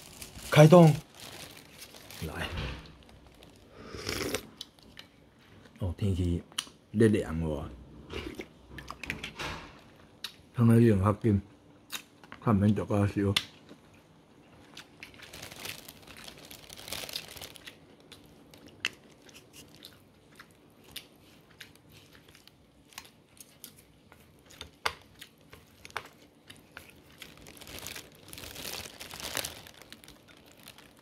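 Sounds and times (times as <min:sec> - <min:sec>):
chewing: 0:16.9 - 0:28.0.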